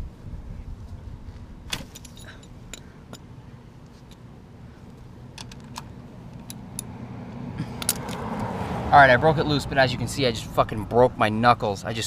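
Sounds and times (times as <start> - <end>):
low steady rumble: 0.0 - 12.0
wrench clicking on metal: 7.8 - 8.5.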